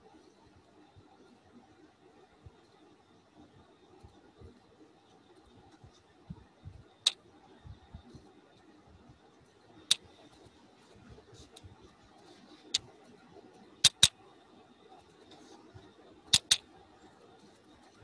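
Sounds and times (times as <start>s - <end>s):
faint room noise: 0.0s - 18.0s
computer mouse clicks: 13.8s - 14.2s, 16.3s - 16.6s.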